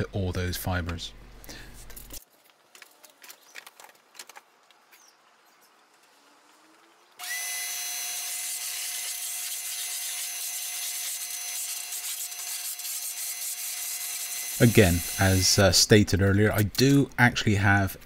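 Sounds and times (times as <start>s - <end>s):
shop vacuum motor whining: 14.2s - 15.6s.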